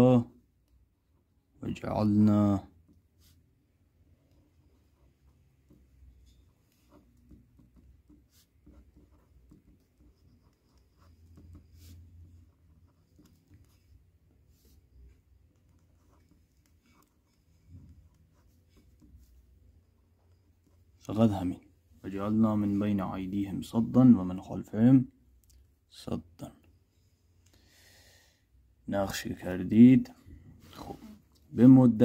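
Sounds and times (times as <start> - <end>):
pen nib scratching on paper: 4.3 - 21.1.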